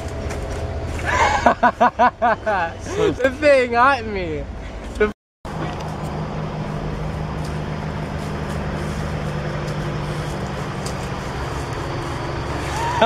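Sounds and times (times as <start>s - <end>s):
vehicle engine idling: 5.5s - 13.0s.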